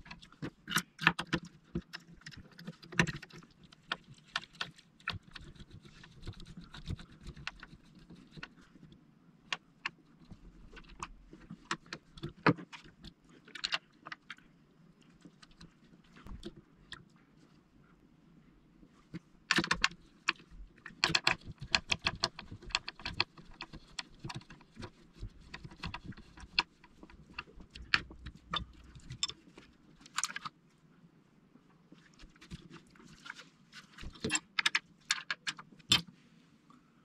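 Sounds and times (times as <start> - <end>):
plastic parts clicking and rattling: 0.0 - 8.7, 19.1 - 30.5, 32.2 - 36.1.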